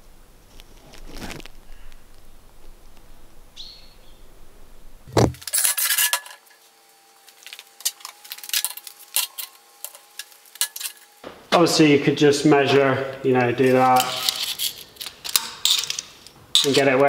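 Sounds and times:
metal clatter: 0:05.1 - 0:06.5, 0:07.8 - 0:11.1, 0:13.7 - 0:17.0
steel scraping on table: 0:05.4 - 0:06.6, 0:13.6 - 0:17.0.

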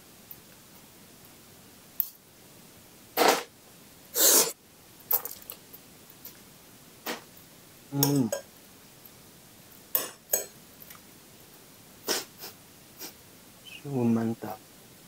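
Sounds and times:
cutlery clinking against bowl: 0:10.0 - 0:10.6.

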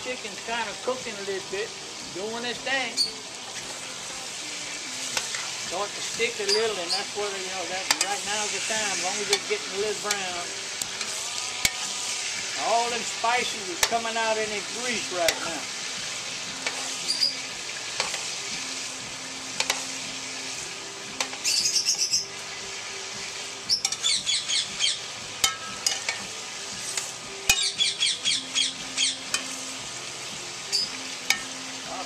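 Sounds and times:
chicken sizzling in a pot: 0:00.0 - 0:32.0
birds chirping in trills: 0:17.0 - 0:17.5, 0:21.4 - 0:22.7, 0:23.6 - 0:25.1, 0:27.5 - 0:29.4, 0:30.7 - 0:31.6.

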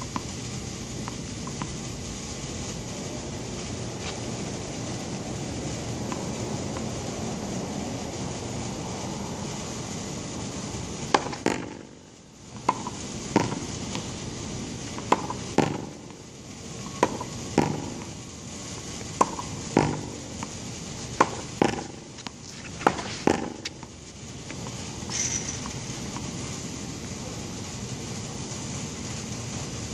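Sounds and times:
tennis ball pops: 0:11.1 - 0:11.8, 0:12.6 - 0:14.1, 0:15.0 - 0:16.0, 0:16.9 - 0:18.1, 0:19.1 - 0:20.5, 0:21.2 - 0:23.8.

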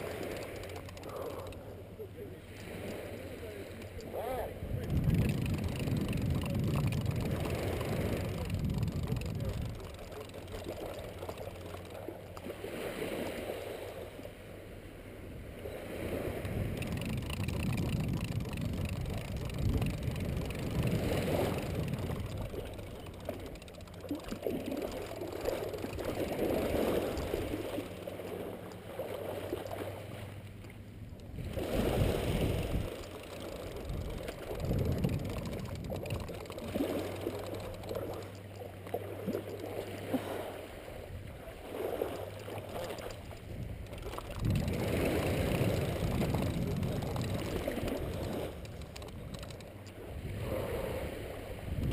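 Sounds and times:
small waves lapping: 0:00.0 - 0:51.9
wind on microphone: 0:03.7 - 0:11.6, 0:15.3 - 0:27.9, 0:31.2 - 0:38.1, 0:41.0 - 0:51.9.

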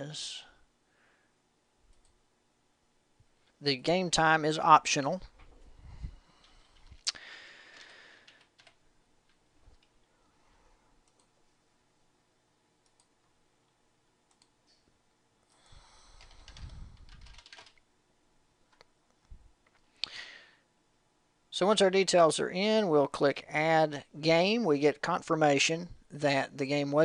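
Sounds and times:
keyboard typing: 0:07.8 - 0:10.0, 0:11.0 - 0:11.4, 0:16.2 - 0:17.8.

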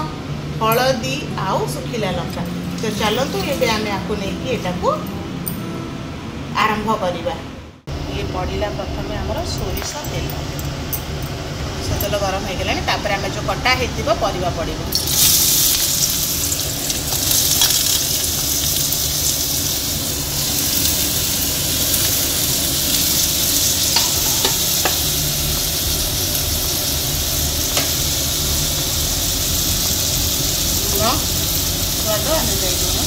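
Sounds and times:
vegetables sizzling in oil: 0:14.9 - 0:33.0.

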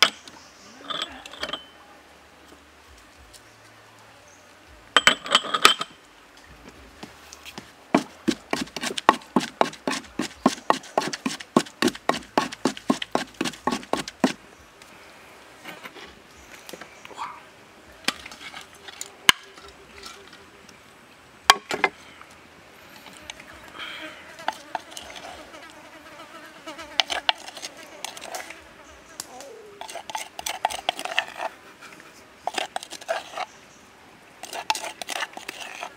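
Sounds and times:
wooden pestle pounding in mortar: 0:07.9 - 0:14.4.

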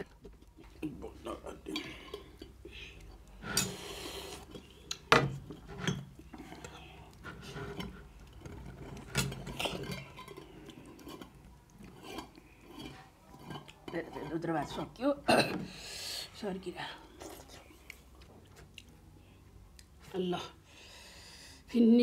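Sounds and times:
metal plates clinking and scraping: 0:03.4 - 0:15.2.

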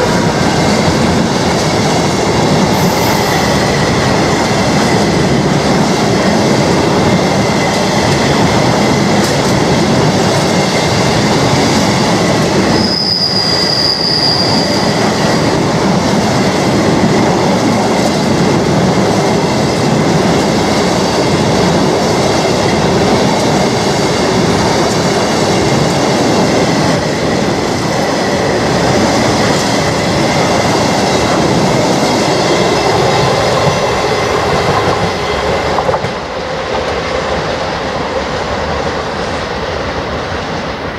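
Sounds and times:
train wheels rumbling on rail: 0:00.0 - 0:40.9
high wheel squeal: 0:02.7 - 0:04.4, 0:12.6 - 0:15.4.

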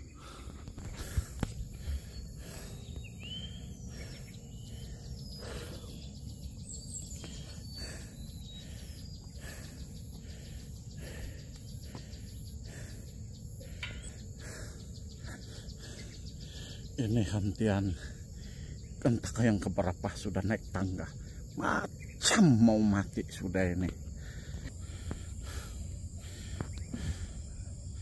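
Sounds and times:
birds whistling: 0:00.0 - 0:19.0, 0:20.7 - 0:28.0
insect buzz: 0:00.0 - 0:28.0.

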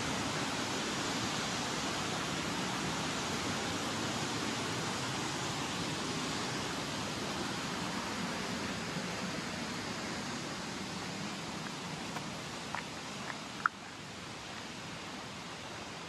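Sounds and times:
rushing river water: 0:00.0 - 0:16.0.

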